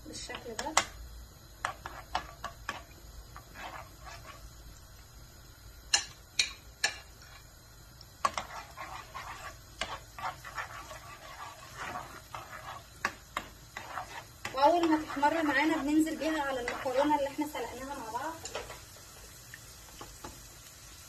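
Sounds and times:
garlic sizzling in oil: 0.0 - 21.0
utensil scraping metal frying pan: 1.6 - 4.5, 5.9 - 7.5, 8.2 - 18.9.

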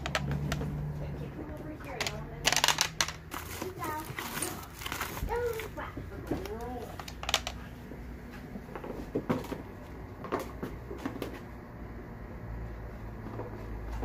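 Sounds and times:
objects knocking and clattering: 0.0 - 1.0, 1.9 - 11.5.

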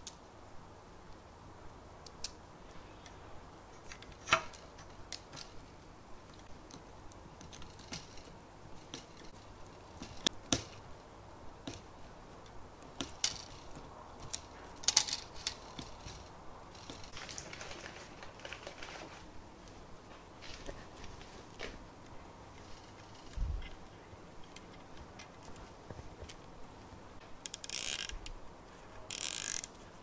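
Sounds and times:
plastic cable chain clicking: 13.0 - 18.8, 27.4 - 28.3, 29.1 - 29.8.

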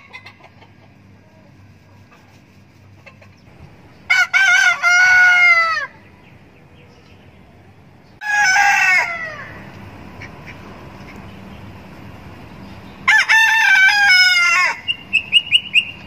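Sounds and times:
rooster crowing: 4.1 - 6.0, 8.2 - 9.7, 13.0 - 14.9.

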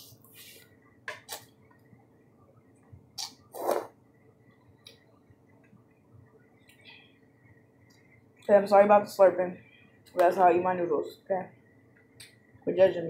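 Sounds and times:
person slurping noodles: 3.2 - 3.9.

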